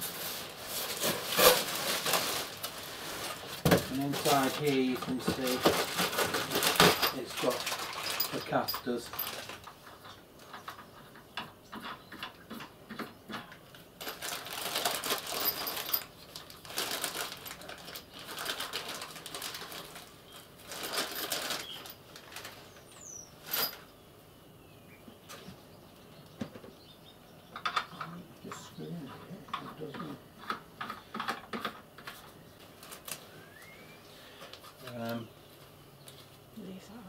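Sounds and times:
plastic bag crinkling: 0:00.0 - 0:10.0, 0:14.0 - 0:23.8, 0:32.6 - 0:33.2.

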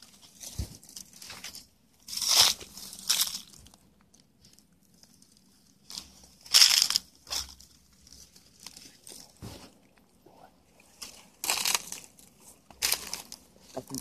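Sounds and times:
footsteps crunching on dry leaves: 0:00.0 - 0:03.8, 0:05.8 - 0:09.8, 0:10.9 - 0:14.0.

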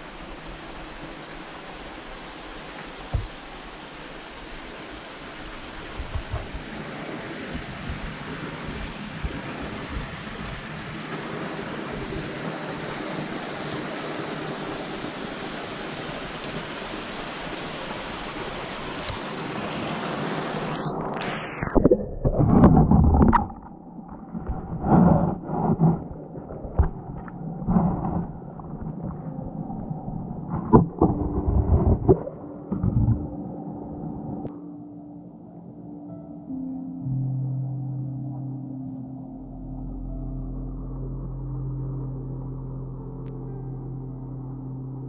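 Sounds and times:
creek water rushing: 0:00.0 - 0:21.9
underwater thumps and gurgles: 0:06.0 - 0:06.6, 0:21.6 - 0:29.3, 0:30.4 - 0:33.4
muffled underwater sound: 0:20.7 - 0:34.5.

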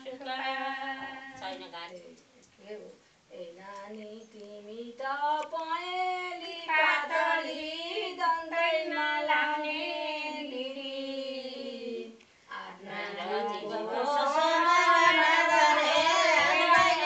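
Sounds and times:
women singing unaccompanied: 0:00.0 - 0:17.0.

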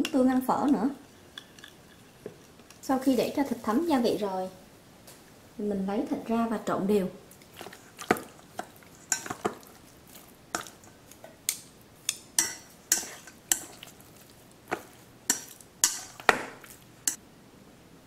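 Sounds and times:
chopsticks clinking on steel bowl: 0:07.4 - 0:17.2.

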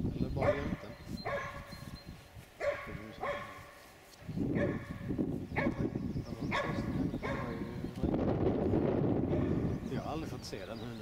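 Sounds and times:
dog barking: 0:00.4 - 0:01.7, 0:02.6 - 0:03.8, 0:04.5 - 0:05.0, 0:05.6 - 0:05.8, 0:06.5 - 0:07.7, 0:09.3 - 0:09.7.

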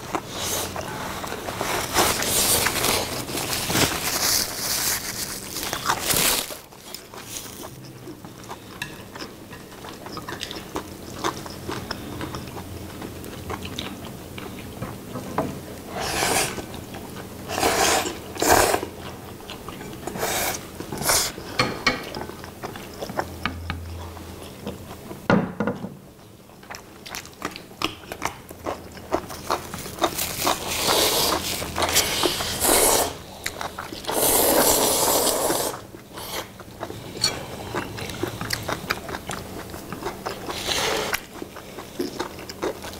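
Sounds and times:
chewing: 0:00.0 - 0:15.2, 0:15.8 - 0:25.2, 0:26.2 - 0:42.9
loud noodle slurps: 0:15.9 - 0:16.6, 0:17.5 - 0:18.9, 0:30.6 - 0:33.2, 0:34.1 - 0:36.5.

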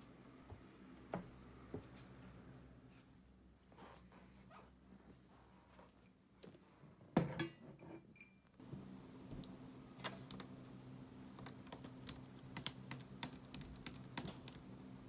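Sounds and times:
steady low hum: 0:08.6 - 0:15.0
laptop keys clicking: 0:11.4 - 0:14.6.

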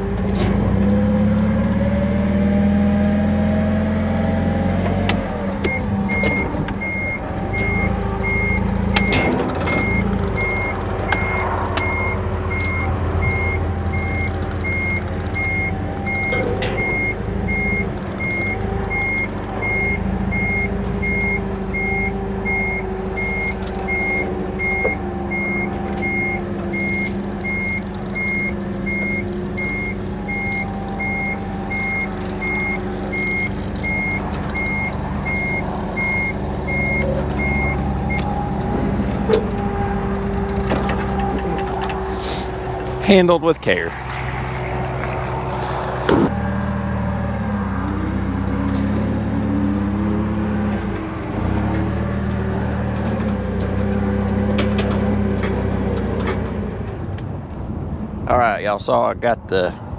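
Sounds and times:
forklift engine running: 0:00.0 - 0:59.9
backup alarm beeping: 0:05.2 - 0:40.1.

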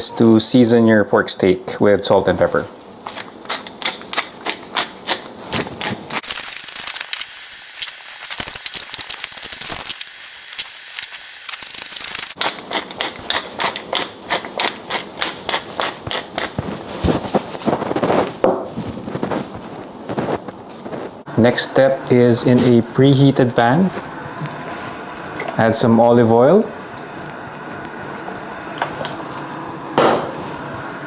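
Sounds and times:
pepper mill grinding: 0:03.0 - 0:18.0.

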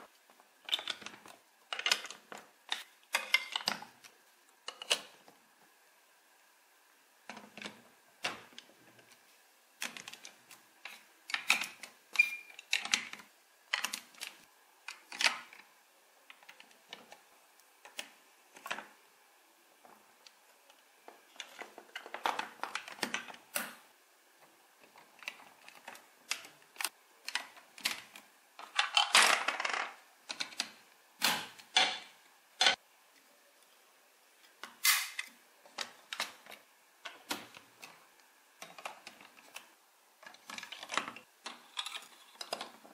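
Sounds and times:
plastic bricks clicking together: 0:00.6 - 0:03.9, 0:27.2 - 0:30.8.

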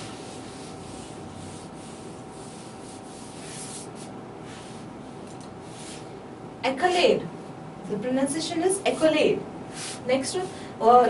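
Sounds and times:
eraser rubbing on whiteboard: 0:00.0 - 0:04.9
faint steady hum: 0:00.0 - 0:11.0.

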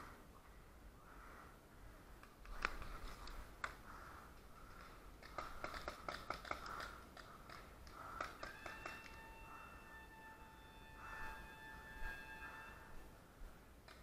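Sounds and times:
paintball markers firing: 0:04.7 - 0:09.2.

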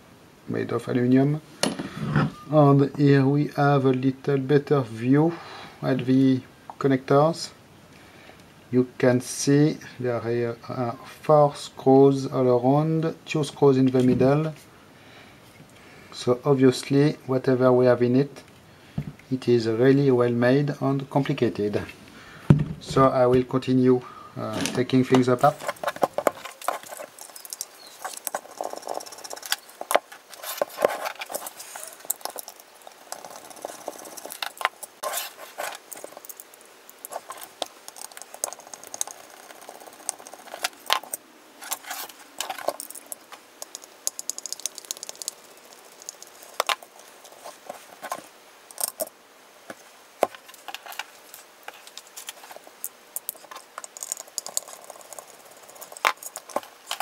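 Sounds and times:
screwdriver and screws clicking on metal: 0:35.7 - 0:47.4, 0:53.2 - 0:57.0.

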